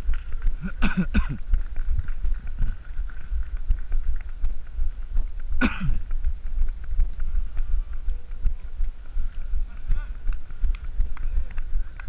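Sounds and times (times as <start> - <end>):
running footfalls: 0.0 - 12.0
wind rumble on microphone: 0.0 - 12.0
loud cough-like breath: 5.6 - 6.0.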